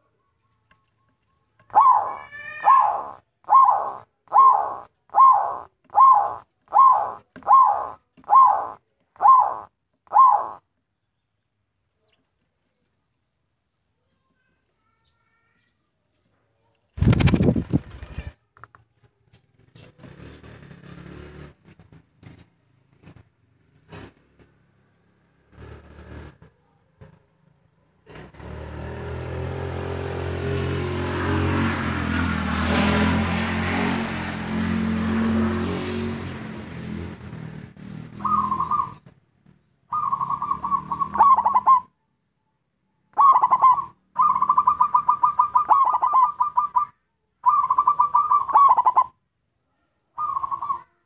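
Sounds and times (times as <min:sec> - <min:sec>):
dove cooing: 0:01.7 - 0:10.6, 0:38.1 - 0:39.1, 0:39.9 - 0:41.9, 0:43.2 - 0:49.1, 0:50.2 - 0:51.0.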